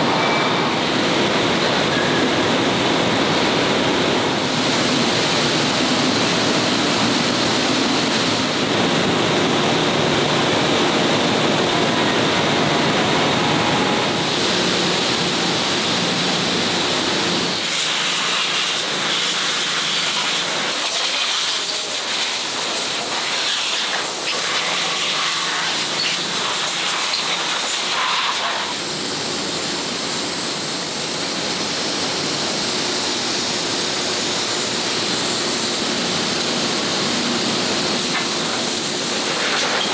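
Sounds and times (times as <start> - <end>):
spray jets hissing: 14.2 - 39.9.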